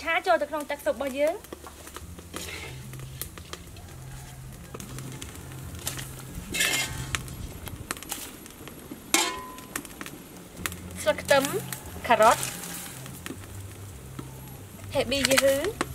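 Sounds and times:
metal spatula scraping a wok: 0:01.7 - 0:03.8, 0:05.2 - 0:07.4, 0:11.2 - 0:13.2.

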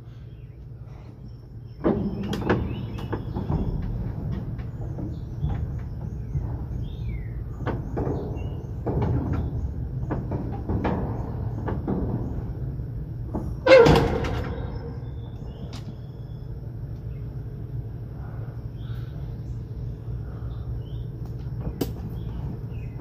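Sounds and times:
metal clicks and knocks: 0:07.6 - 0:12.6
metallic door clank ringing: 0:13.5 - 0:16.0.

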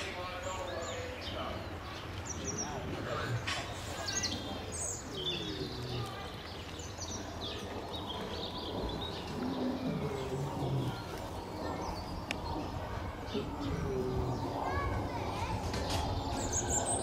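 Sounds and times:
birds chirping: 0:00.0 - 0:17.0
distant human voices: 0:00.0 - 0:17.0.

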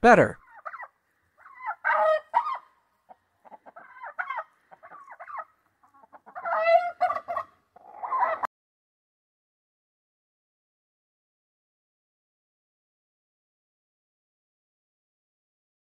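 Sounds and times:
chickens clucking: 0:00.4 - 0:08.5.

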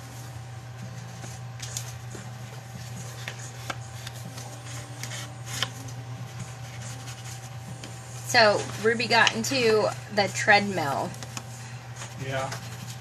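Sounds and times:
cards rustling: 0:01.1 - 0:07.6.

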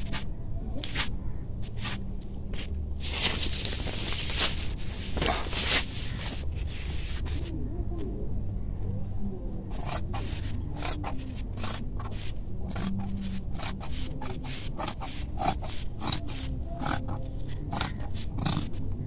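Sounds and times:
scissors snipping cloth: 0:09.7 - 0:18.8.

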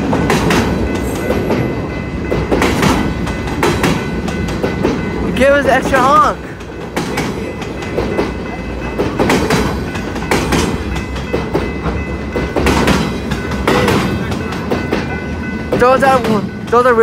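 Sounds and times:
train wheels clattering over rail joints: 0:00.0 - 0:05.3, 0:06.0 - 0:17.0
low train rumble: 0:00.0 - 0:17.0.

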